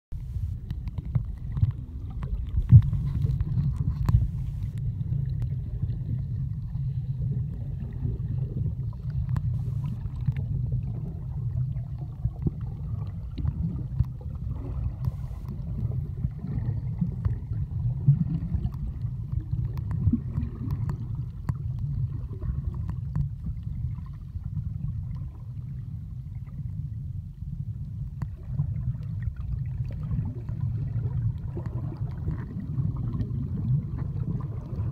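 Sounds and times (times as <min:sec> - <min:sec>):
underwater rumble of moving water: 0:00.1 - 0:34.9
faint clicks: 0:00.4 - 0:05.5.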